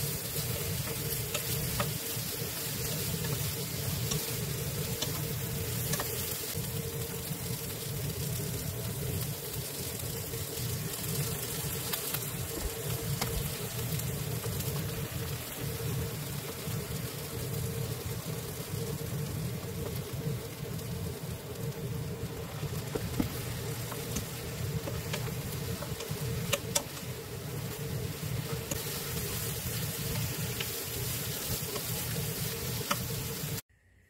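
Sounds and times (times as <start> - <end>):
eggplant sizzling in a wok: 0.0 - 33.7
steady hum: 0.0 - 34.0.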